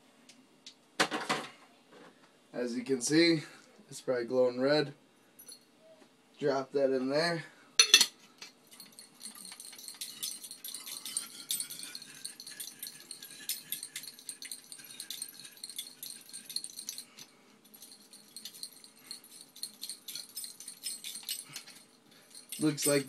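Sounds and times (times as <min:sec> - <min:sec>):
flint rattling in glass jar: 0:07.8 - 0:23.0.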